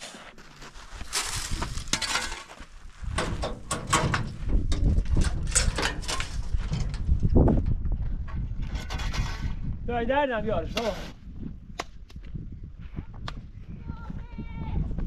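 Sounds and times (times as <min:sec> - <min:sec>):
shovel scraping gravel: 0:00.0 - 0:03.2, 0:10.6 - 0:11.2
clanks on metal tailgate: 0:03.2 - 0:07.0.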